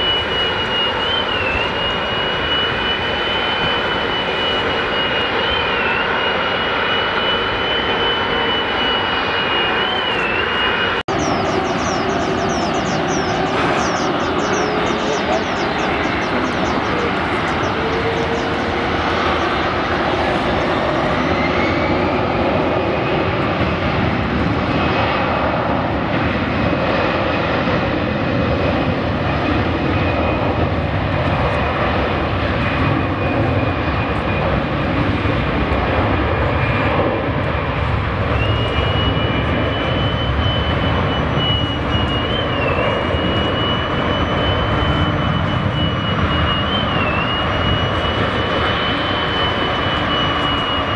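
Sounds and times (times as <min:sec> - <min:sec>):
second wavering whine: 0:00.0 - 0:23.4, 0:38.3 - 0:50.9
jet engines roaring: 0:00.0 - 0:50.9.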